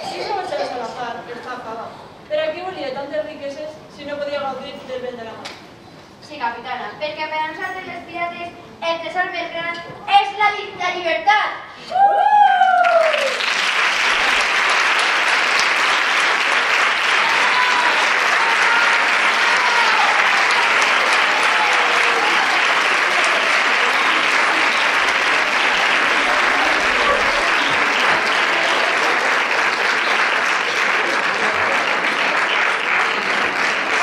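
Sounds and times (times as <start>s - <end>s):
audience applauding: 12.6s - 34.0s.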